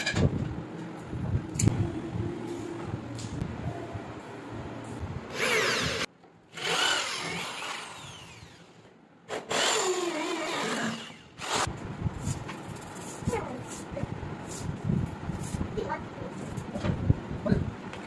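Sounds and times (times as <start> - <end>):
power drill cutting wood: 5.3 - 8.7, 9.3 - 11.7.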